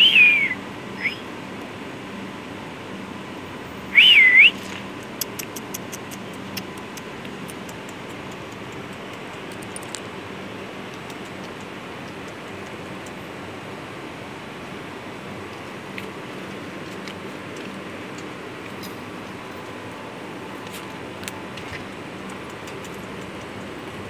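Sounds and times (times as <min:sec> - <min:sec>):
person whistling: 0:00.0 - 0:01.2, 0:04.0 - 0:04.6
steady background hum: 0:00.0 - 0:24.0.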